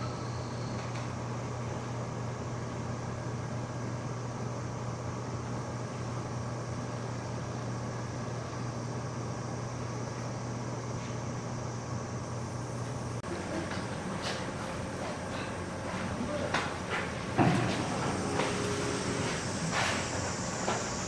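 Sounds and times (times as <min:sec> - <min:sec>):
low mechanical hum: 0:00.0 - 0:21.0
even hiss: 0:17.4 - 0:21.0.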